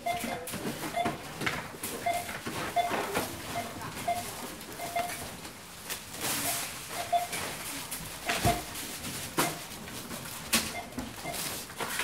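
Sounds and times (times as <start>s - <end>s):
scanner beeps: 0.0s - 1.2s, 2.0s - 5.3s, 6.4s - 7.4s, 10.7s - 11.5s
items knocking and clattering: 7.3s - 12.0s.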